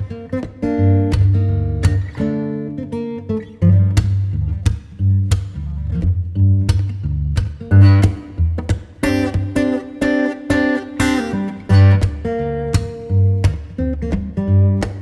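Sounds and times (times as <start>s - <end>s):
strummed guitar chords: 0.0s - 15.0s
deep bass: 3.6s - 8.8s.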